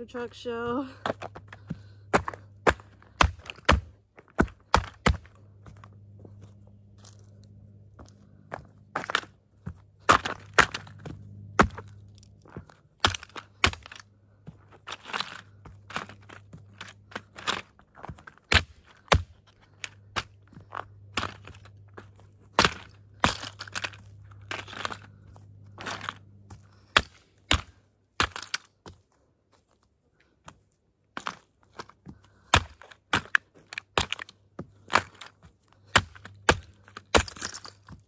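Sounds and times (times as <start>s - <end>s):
toy truck cracking and crunching: 10.0s - 14.1s, 14.7s - 25.2s, 25.8s - 28.8s, 31.1s - 38.0s.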